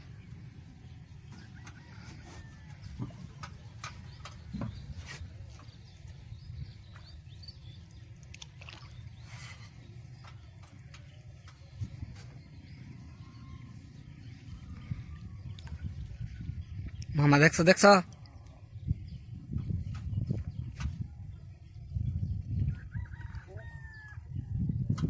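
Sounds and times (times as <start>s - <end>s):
steady low rumble: 0.0s - 17.1s.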